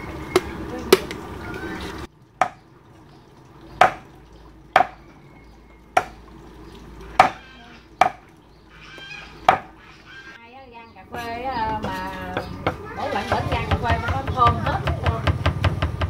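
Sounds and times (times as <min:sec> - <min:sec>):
cleaver chopping on wooden block: 0:03.8 - 0:04.0, 0:04.8 - 0:05.0, 0:07.2 - 0:07.4, 0:08.0 - 0:08.2, 0:09.5 - 0:09.7.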